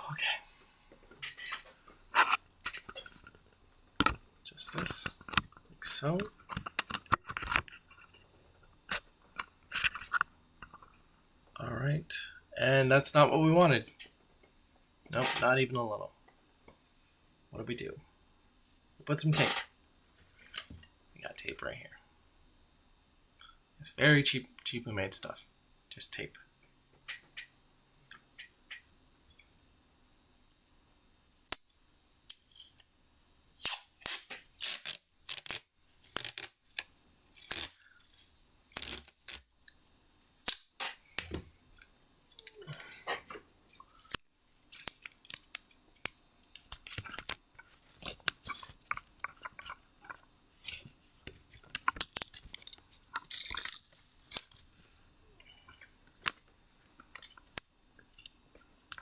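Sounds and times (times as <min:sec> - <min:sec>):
tape ripping off roll: 0:33.6 - 0:36.6, 0:37.4 - 0:39.5.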